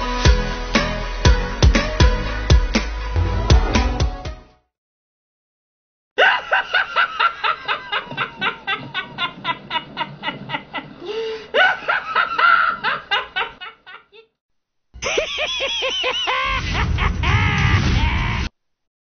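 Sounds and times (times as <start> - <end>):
person cackling laugh: 6.2 - 14.3, 15.0 - 18.5.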